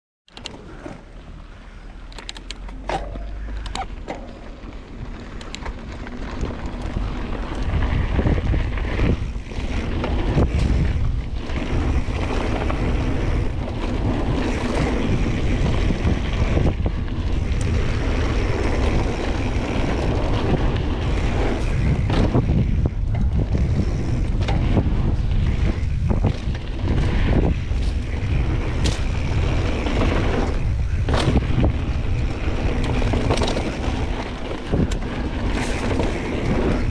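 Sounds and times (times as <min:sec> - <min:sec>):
bike tyre noise: 0:00.3 - 0:36.9
bike knocks and rattles: 0:02.2 - 0:36.9
wind buffeting microphone: 0:02.4 - 0:36.9.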